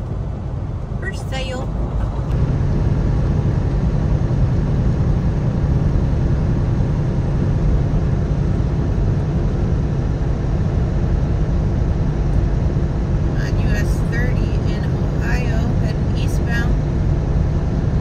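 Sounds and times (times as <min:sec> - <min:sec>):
truck engine and tyres rumbling: 0:00.0 - 0:18.0.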